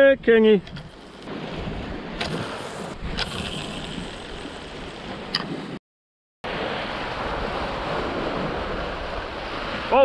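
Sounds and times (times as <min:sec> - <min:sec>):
wind on microphone: 0:00.6 - 0:05.8
surf washing against rocks: 0:06.5 - 0:10.0.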